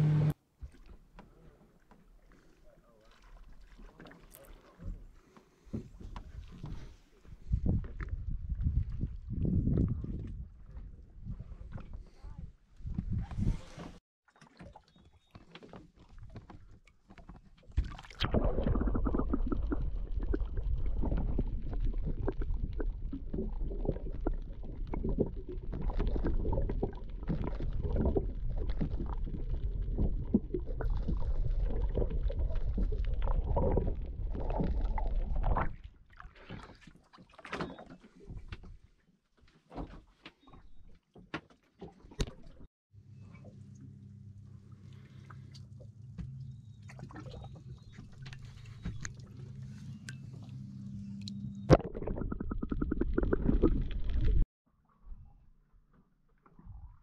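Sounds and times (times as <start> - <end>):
boat motor rumbling: 0.0 - 0.4, 43.0 - 54.4.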